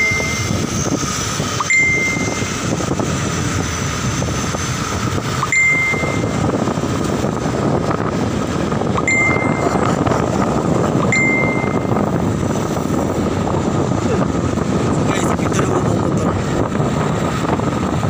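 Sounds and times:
high ding: 0.0s - 0.6s, 1.6s - 2.6s, 5.4s - 6.5s, 9.0s - 10.0s, 11.1s - 12.0s
scooter engine and wind rushing: 0.0s - 18.0s.

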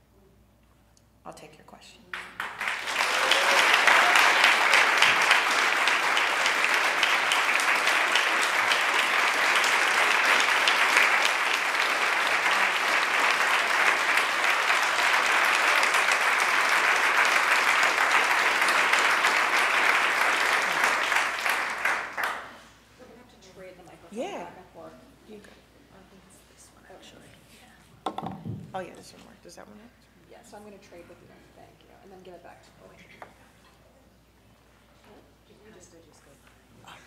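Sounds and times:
audience applauding: 2.1s - 22.7s.

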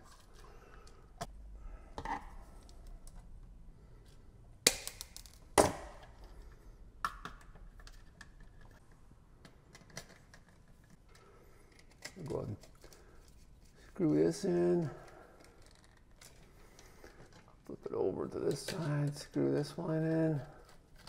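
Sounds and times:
clicks and rattles of wiring: 7.2s - 19.7s.

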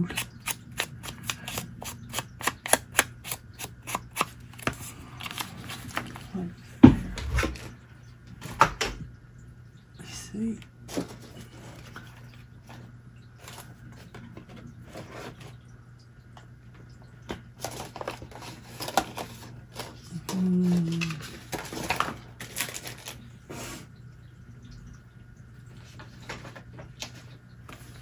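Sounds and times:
paper rustling: 0.5s - 6.3s, 17.6s - 23.2s.

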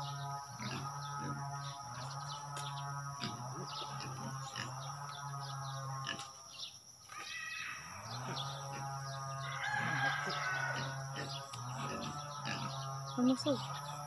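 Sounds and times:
rooster crowing: 7.2s - 11.4s.

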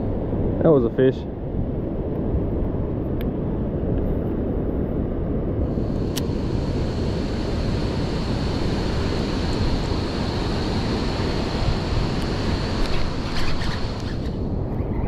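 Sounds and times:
wind on microphone: 0.0s - 15.0s
river water flowing: 5.8s - 14.4s
faint clicks: 5.9s - 6.4s, 12.2s - 14.4s.

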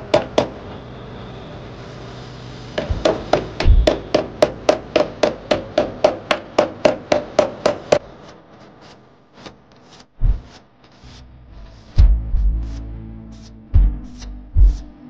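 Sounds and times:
hammer striking steel hinge: 2.8s - 8.0s
low thump: 3.6s - 3.9s, 12.0s - 12.7s, 13.7s - 14.8s
rubbing sounds: 8.7s - 14.9s.

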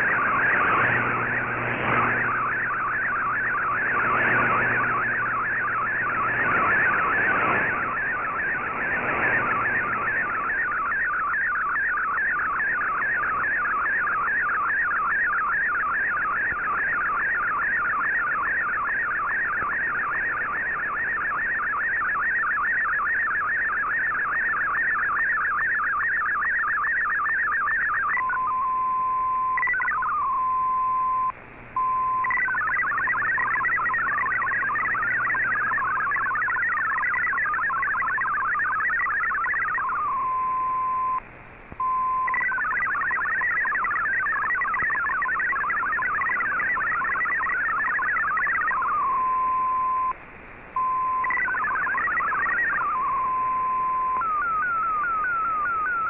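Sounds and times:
steady single tone: 0.0s - 11.1s
warbling digital data tones: 0.0s - 41.2s, 41.8s - 50.2s, 50.8s - 56.0s.

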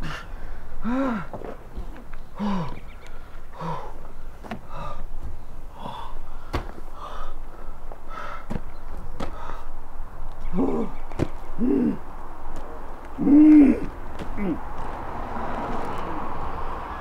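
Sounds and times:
man groaning and gasping: 0.0s - 1.4s, 2.4s - 2.8s, 3.5s - 4.0s, 5.7s - 6.2s, 11.6s - 12.0s, 13.2s - 14.6s
sharp knocks: 6.5s - 6.8s.

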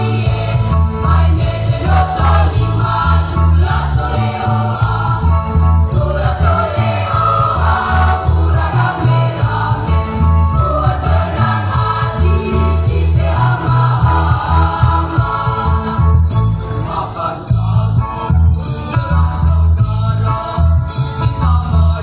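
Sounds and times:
school choir singing: 0.0s - 5.3s, 5.9s - 17.6s
amplified accompaniment with deep bass: 0.0s - 22.0s.

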